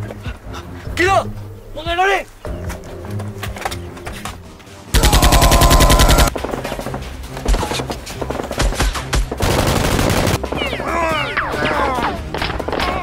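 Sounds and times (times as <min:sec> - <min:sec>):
background music: 0:00.0 - 0:13.0
machine-gun fire: 0:05.0 - 0:06.6, 0:09.3 - 0:10.6.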